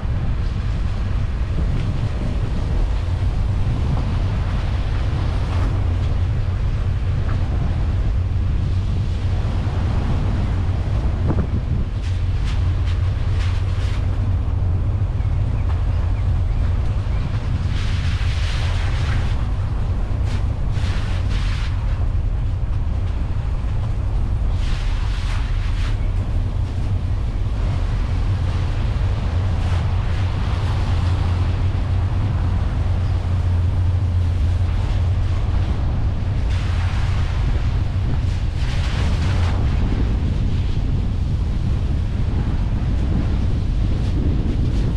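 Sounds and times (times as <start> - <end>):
road noise: 0.0 - 44.9
wind rumble on microphone: 0.0 - 44.9
tyres hissing on wet road: 16.7 - 44.9.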